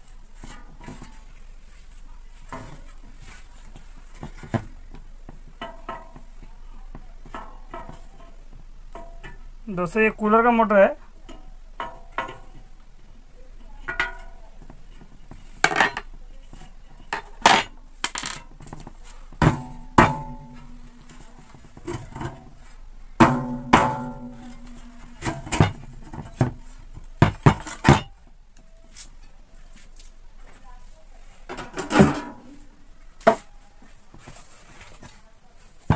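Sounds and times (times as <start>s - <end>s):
metal clanks and knocks: 4.1s - 6.3s, 7.2s - 9.4s, 11.2s - 12.7s, 13.8s - 22.6s, 23.2s - 28.2s, 31.5s - 32.6s.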